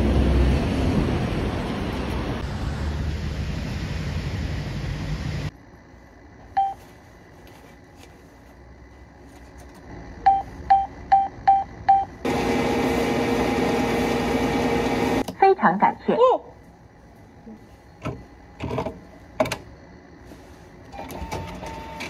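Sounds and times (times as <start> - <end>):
machine electric hum: 1.4 - 15.4
keypad beeps: 10.3 - 12.1.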